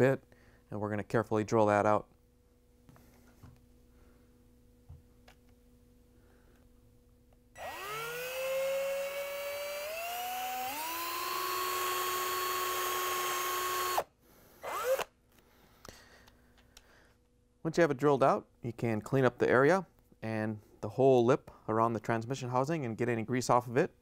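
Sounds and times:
electric drill motor whine: 7.6 - 15.1.

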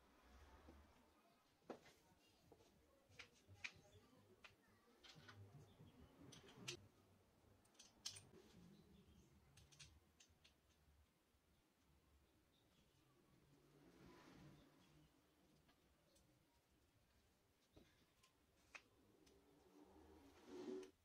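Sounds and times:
soft handling noise: 0.6 - 6.8, 13.7 - 21.0
small metal clicks and taps: 7.6 - 8.4, 9.5 - 10.9.

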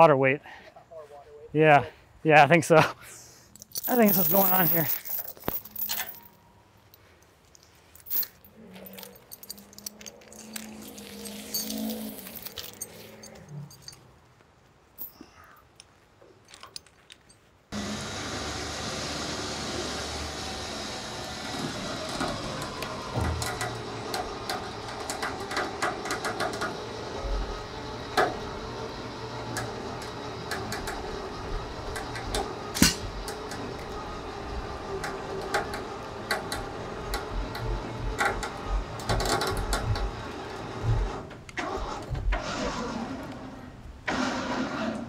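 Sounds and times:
chain clinking: 3.5 - 14.2, 14.9 - 17.5
winch running: 17.7 - 45.0.

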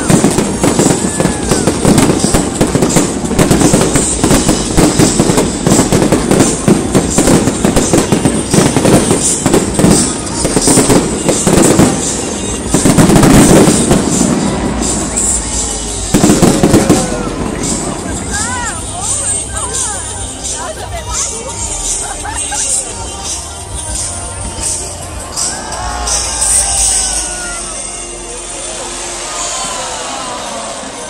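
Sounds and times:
fireworks bangs and crackling: 0.0 - 31.0.

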